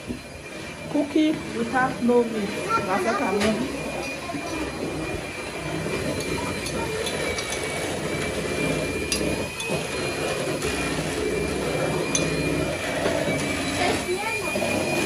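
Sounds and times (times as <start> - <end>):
mechanical hum with high whine: 0.0 - 15.0
utensils clinking on pot: 5.5 - 11.1, 11.7 - 15.0.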